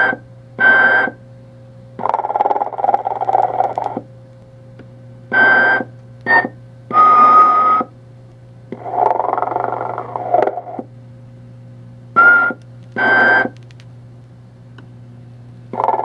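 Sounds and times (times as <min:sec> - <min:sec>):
steady low hum: 0:00.0 - 0:16.0
toy snoring through speaker: 0:02.0 - 0:03.9, 0:08.8 - 0:10.8, 0:15.8 - 0:16.0
short loud tones: 0:05.4 - 0:07.9.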